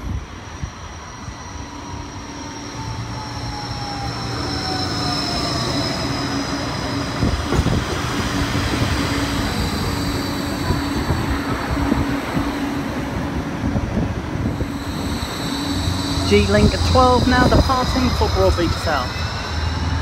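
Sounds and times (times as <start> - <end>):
tram electric drive whine: 0.0 - 20.0
steady low hum: 8.4 - 20.0.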